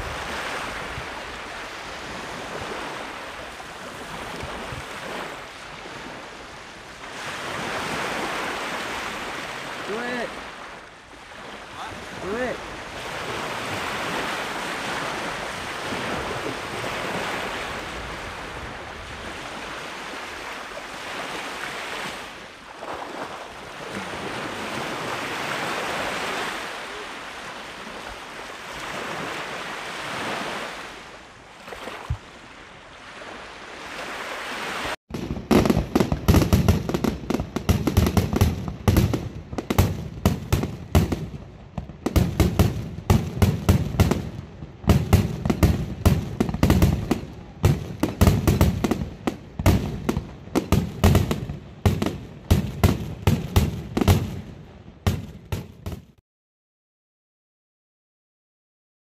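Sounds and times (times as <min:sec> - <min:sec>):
waves washing onto pebble beach: 0:00.0 - 0:32.1
fireworks bangs and pops: 0:35.1 - 0:56.2.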